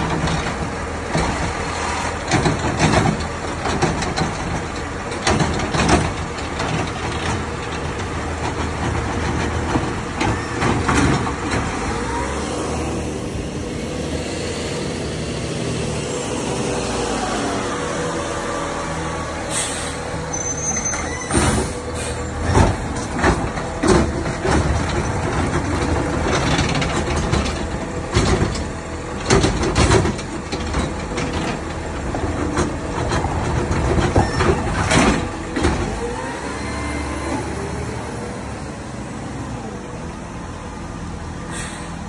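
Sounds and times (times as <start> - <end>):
garbage truck engine and hydraulics: 0.0 - 42.0
bangs and knocks of trash cart: 2.2 - 12.1, 21.3 - 36.2
air brakes hissing: 19.4 - 22.5, 41.4 - 42.0.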